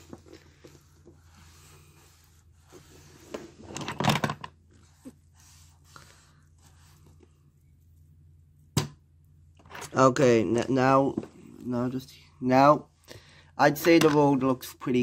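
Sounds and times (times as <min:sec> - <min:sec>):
tissue rustling and scraping: 0:00.0 - 0:03.8, 0:04.6 - 0:08.2.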